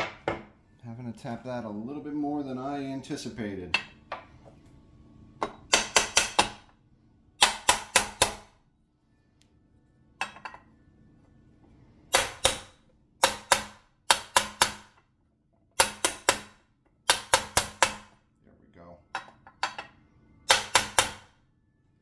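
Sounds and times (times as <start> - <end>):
hammer tapping metal: 5.4 - 6.7, 7.4 - 8.5, 12.1 - 15.0, 15.8 - 18.2, 20.5 - 21.3.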